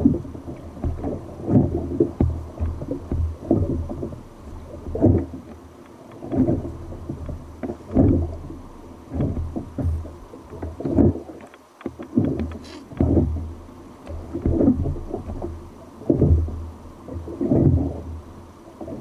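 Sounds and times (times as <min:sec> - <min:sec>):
water slapping against kayak hull: 0:00.0 - 0:19.0
faint clicks: 0:09.8 - 0:13.0.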